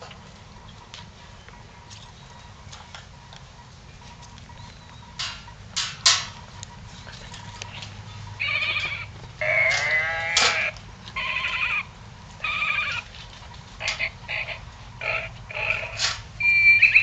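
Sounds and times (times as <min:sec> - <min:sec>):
puppies whining: 0:07.3 - 0:13.1, 0:13.8 - 0:17.0.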